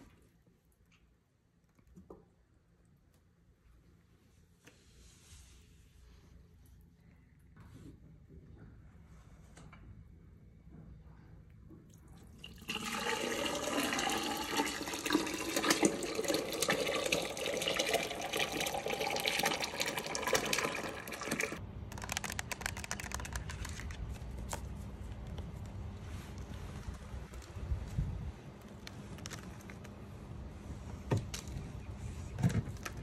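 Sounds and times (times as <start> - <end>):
thick slurry pouring and gurgling: 12.2 - 21.6.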